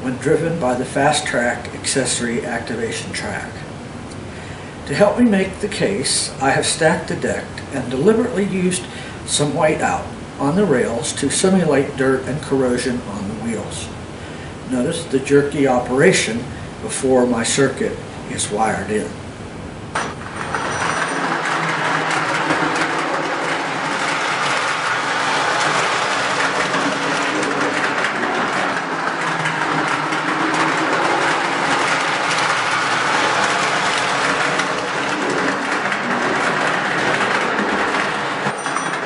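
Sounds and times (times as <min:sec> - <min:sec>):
model train wheels clicking on track: 0:20.0 - 0:39.0.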